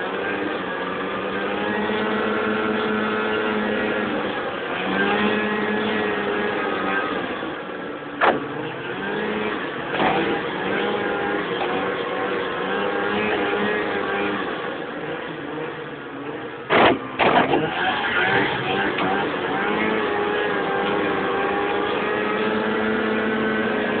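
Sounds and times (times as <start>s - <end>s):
small thump: 16.7s - 17.6s.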